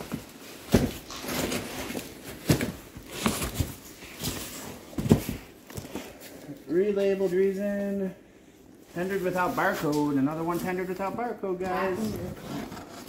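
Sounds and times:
cardboard boxes knocking: 0.0 - 5.9
cardboard rustling: 0.0 - 6.4.

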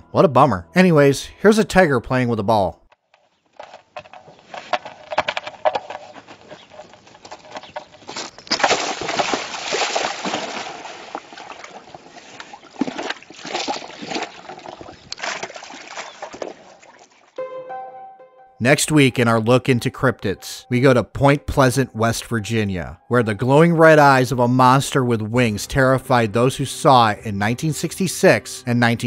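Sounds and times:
water splashing in metal tank: 8.5 - 17.4.

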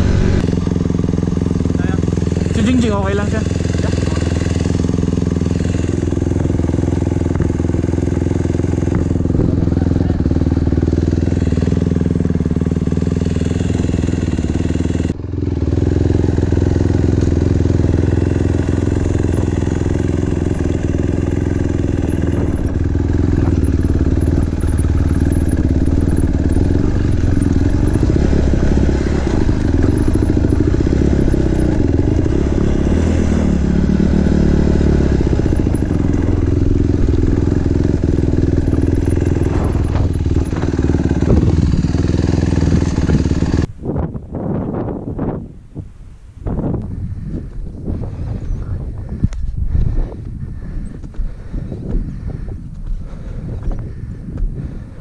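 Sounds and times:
dirt bike engine running: 0.0 - 45.5, 46.4 - 55.0.

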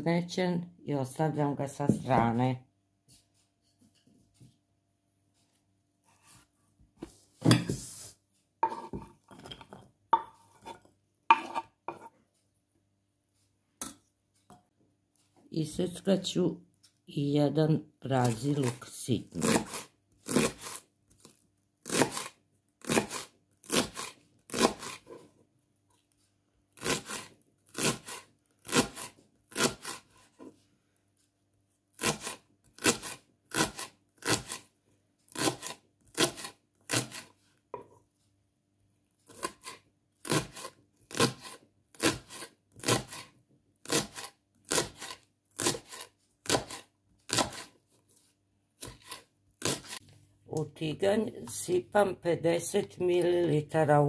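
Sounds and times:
knife chopping on wooden board: 11.3 - 12.1, 19.4 - 20.8, 21.8 - 25.1, 26.8 - 30.1, 32.0 - 34.6, 35.3 - 37.9, 39.3 - 47.7, 48.8 - 50.0.

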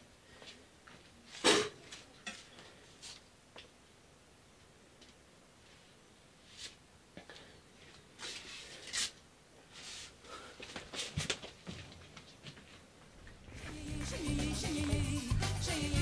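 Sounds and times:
rustles and shuffles of movement: 0.2 - 3.8, 4.5 - 13.8
music: 13.5 - 16.0.

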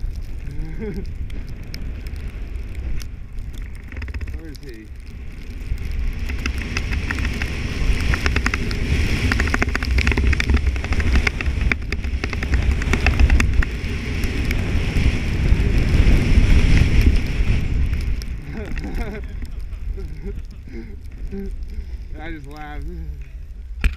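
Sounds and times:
wind rumbling on microphone: 0.0 - 23.9
snow hissing under skis: 6.1 - 21.5.

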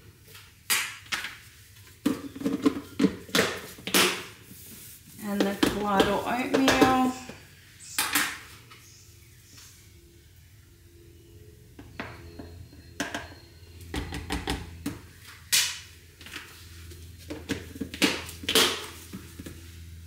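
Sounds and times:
spoon tapping plastic jug: 5.3 - 7.3.

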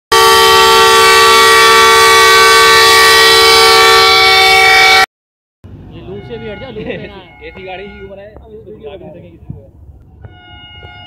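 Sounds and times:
train air horn: 0.1 - 5.1, 10.2 - 11.0.

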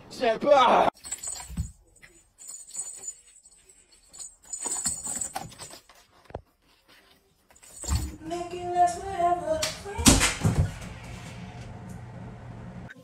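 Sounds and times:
small jingle bell jangling: 1.0 - 5.9, 7.5 - 9.1.

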